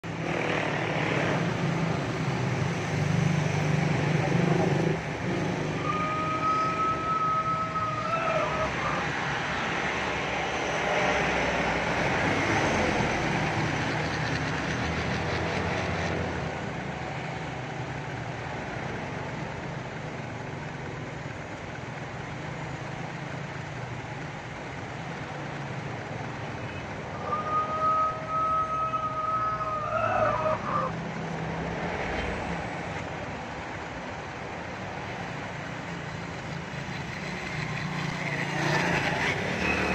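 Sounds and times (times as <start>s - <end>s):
traffic passing: 0.0s - 39.9s
vehicle horn: 5.8s - 8.0s.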